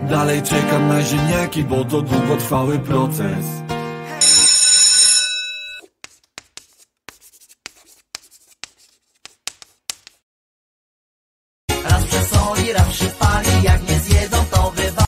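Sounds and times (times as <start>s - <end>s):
chalk scratching on blackboard: 5.8s - 10.2s.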